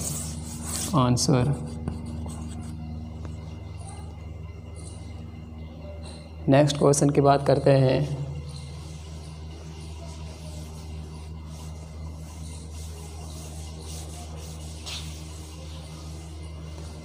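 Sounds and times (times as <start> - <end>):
cloth rubbing on chalkboard: 0.0 - 2.9, 8.6 - 17.0
steady low hum: 0.0 - 17.0.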